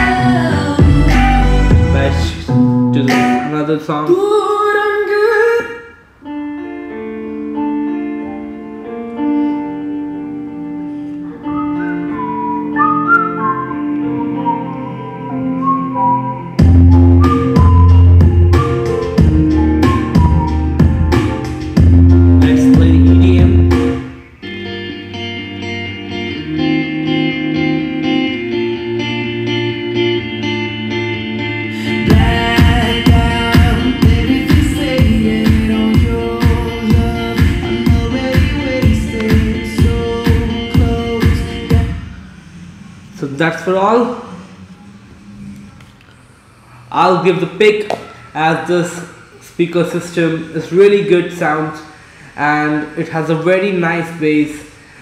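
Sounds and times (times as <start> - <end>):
gliding lead melody: 0.0 - 3.6, 6.3 - 43.2
held keyboard chords: 0.0 - 3.7, 6.2 - 43.1
song with singing: 0.0 - 6.0, 22.4 - 24.1, 31.6 - 43.1.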